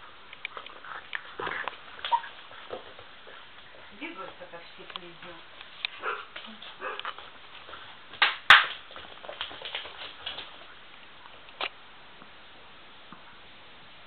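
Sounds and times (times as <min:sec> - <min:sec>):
puppies scrabbling on wooden floor: 0:00.5 - 0:10.8.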